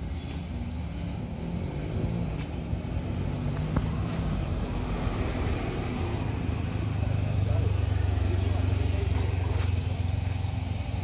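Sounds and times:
truck engine labouring uphill: 0:00.0 - 0:11.0.

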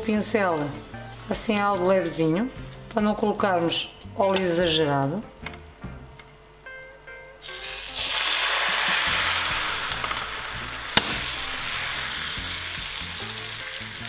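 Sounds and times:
batter sizzling in a pan: 0:07.4 - 0:14.0.

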